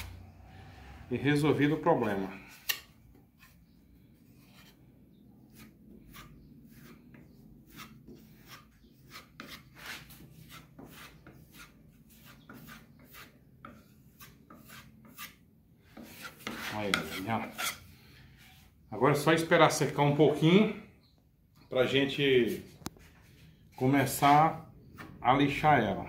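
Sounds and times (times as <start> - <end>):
putty knife scraping wood: 2.0 - 3.6, 4.2 - 4.8, 5.4 - 18.7.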